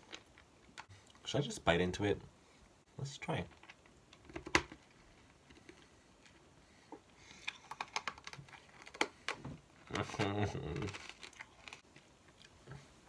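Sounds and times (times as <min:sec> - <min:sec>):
hard candy crunching: 0:07.3 - 0:12.6.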